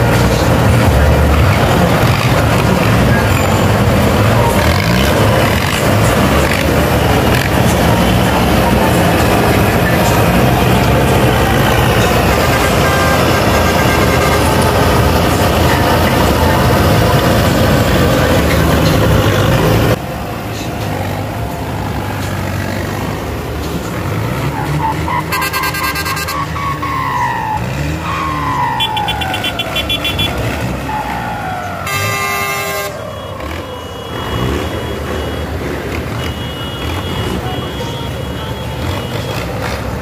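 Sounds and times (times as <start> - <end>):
tractor diesel engines running: 0.0 - 40.0
short horn blasts: 12.1 - 14.8, 25.2 - 26.8, 31.8 - 33.0
falling siren-like horn whoops: 24.8 - 34.8.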